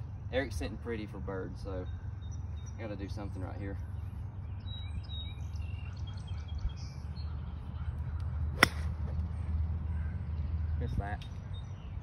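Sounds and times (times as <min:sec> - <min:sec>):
birds chirping: 0:00.0 - 0:12.0
golf club striking ball: 0:08.6 - 0:09.0.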